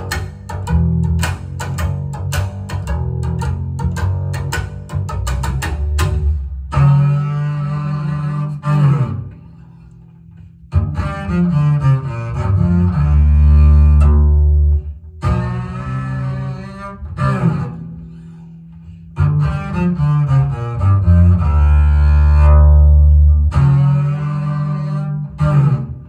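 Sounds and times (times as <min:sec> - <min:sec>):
jazz double bass over loudspeakers: 0:00.0 - 0:26.0.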